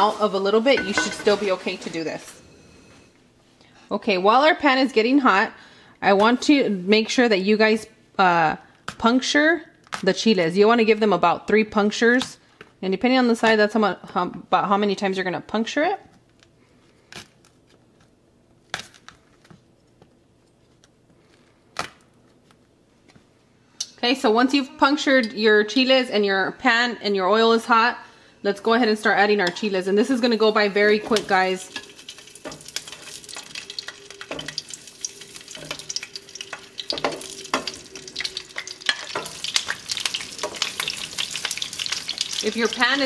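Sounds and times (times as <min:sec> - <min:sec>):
peppers sizzling in oil: 0:00.0 - 0:02.4, 0:28.9 - 0:43.0
tongs knocking on pan: 0:00.8 - 0:01.4, 0:31.0 - 0:42.2
oil crackling and popping: 0:29.5 - 0:43.0.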